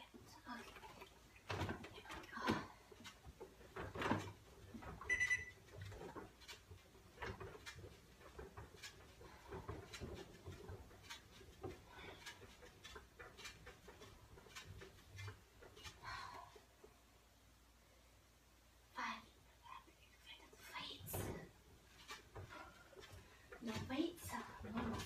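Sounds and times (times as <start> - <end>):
elliptical trainer clicks and knocks: 21.1 - 25.0.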